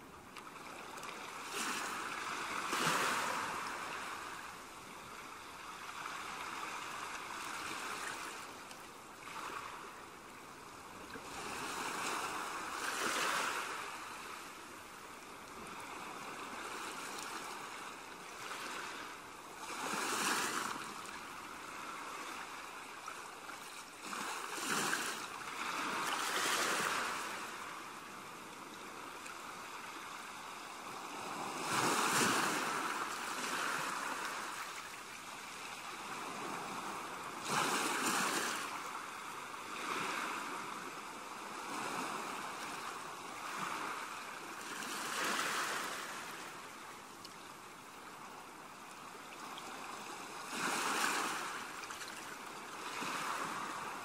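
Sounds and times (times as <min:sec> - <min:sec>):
ocean waves breaking: 0:00.6 - 0:04.6, 0:11.2 - 0:14.6, 0:15.6 - 0:28.0, 0:29.0 - 0:46.7, 0:49.7 - 0:54.0.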